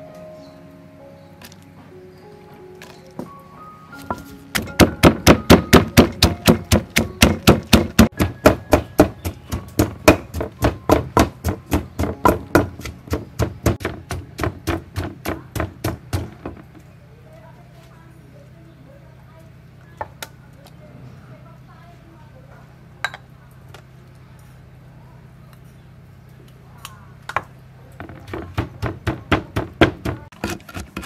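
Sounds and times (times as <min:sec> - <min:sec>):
pestle pounding in a mortar: 0:04.5 - 0:16.8, 0:28.0 - 0:31.0.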